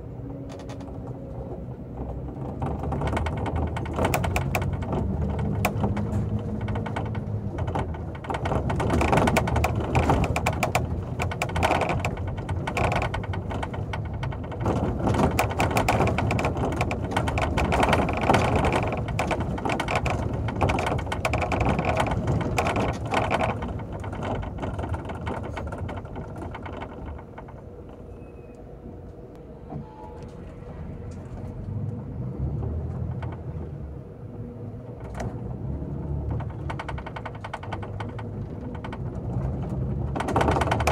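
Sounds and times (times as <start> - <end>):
bus interior rattling: 0.0 - 40.9
low engine rumble: 0.0 - 40.9.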